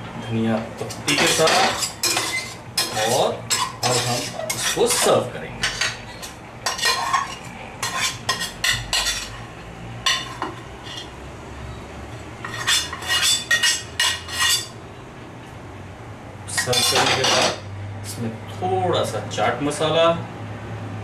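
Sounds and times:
metal spatula scraping frying pan: 0:01.0 - 0:09.5, 0:10.1 - 0:11.1, 0:12.4 - 0:14.8, 0:16.6 - 0:17.6.

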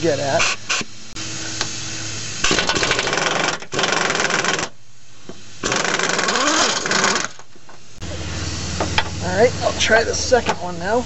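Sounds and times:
pneumatic impact wrench hammering: 0:02.4 - 0:07.6.

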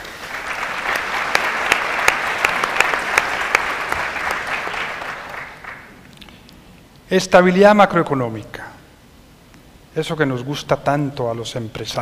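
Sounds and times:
large audience applauding: 0:00.0 - 0:06.0.

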